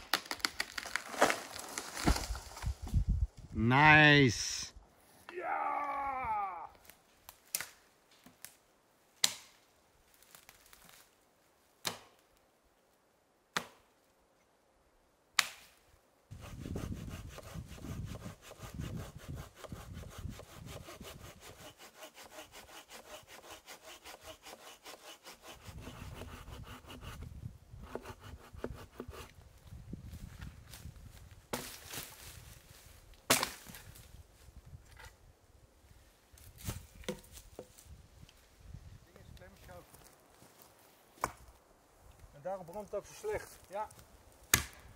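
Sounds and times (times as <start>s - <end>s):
axe striking a log: 11.8s - 12.2s, 13.6s - 13.8s, 33.3s - 33.8s, 44.4s - 44.9s
hand saw cutting log: 16.3s - 29.3s.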